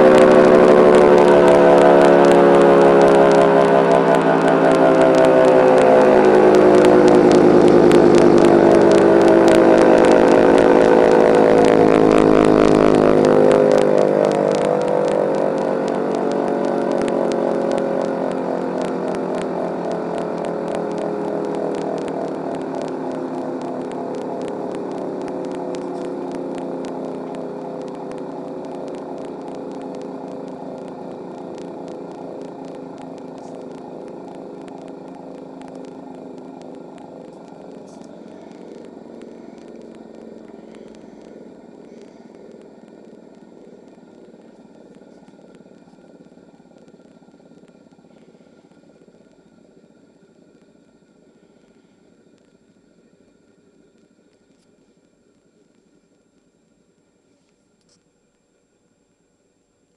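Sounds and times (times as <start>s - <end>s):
mechanical siren chord: 0.0s - 47.1s
faint steady grinding: 0.0s - 59.9s.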